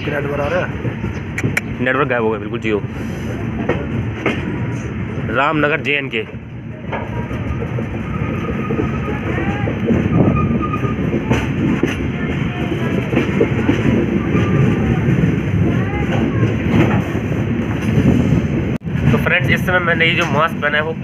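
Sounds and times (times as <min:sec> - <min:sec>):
train wheels rumbling on rails: 0:00.0 - 0:21.0
rail joint clicks: 0:00.1 - 0:01.8, 0:03.3 - 0:05.1, 0:06.1 - 0:18.3, 0:20.0 - 0:20.6
faint voices: 0:10.9 - 0:18.0.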